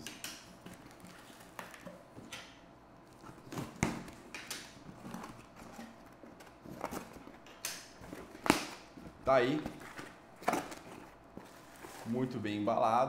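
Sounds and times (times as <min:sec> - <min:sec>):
cardboard snapping: 0:03.2 - 0:11.1.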